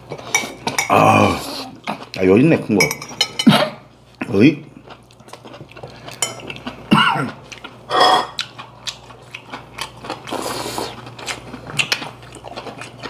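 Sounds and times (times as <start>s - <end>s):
voiced moan: 0.9s - 1.8s
chewing with full mouth: 4.7s - 13.0s.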